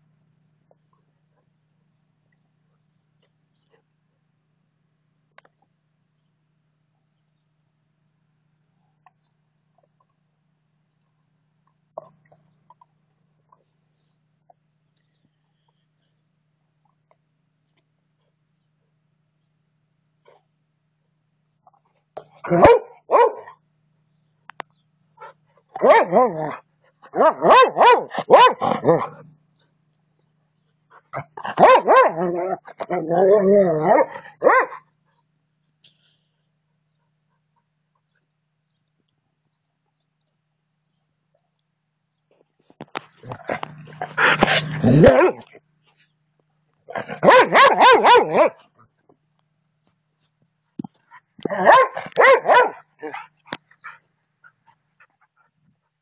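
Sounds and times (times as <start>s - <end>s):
dog barking: 22.4s - 23.6s, 25.8s - 29.2s, 31.5s - 33.1s, 33.8s - 34.8s, 44.0s - 45.5s, 47.0s - 48.6s, 51.5s - 53.3s
dog growling: 28.6s - 29.3s, 43.2s - 45.6s.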